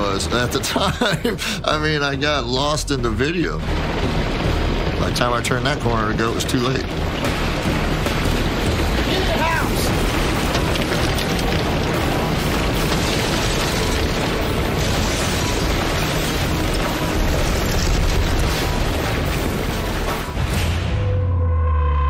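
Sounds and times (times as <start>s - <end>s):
tornado wind and debris rushing: 3.4s - 20.6s.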